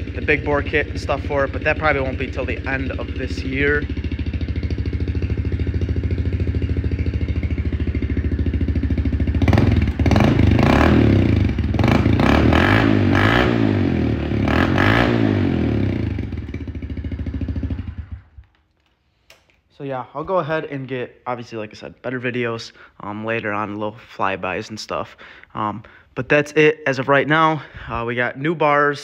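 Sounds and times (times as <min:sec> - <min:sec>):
motorbike engine idling and revving: 0:00.0 - 0:18.6.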